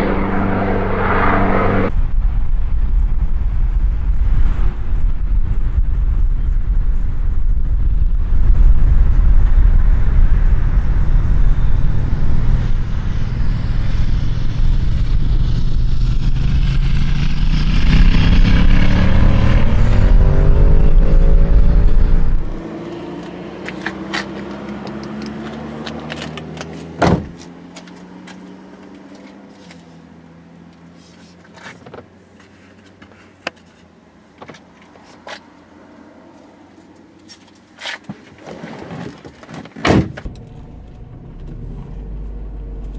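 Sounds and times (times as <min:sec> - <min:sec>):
car passing: 0:00.0 - 0:02.2, 0:09.8 - 0:29.9
wind buffeting microphone: 0:01.6 - 0:22.6
faint engine hum: 0:40.3 - 0:42.9.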